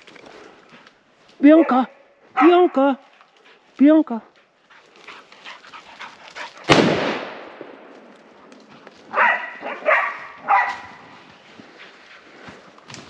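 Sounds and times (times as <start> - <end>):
dog barking: 1.4 - 2.9, 9.1 - 11.1
rifle shot echoing: 6.7 - 8.1.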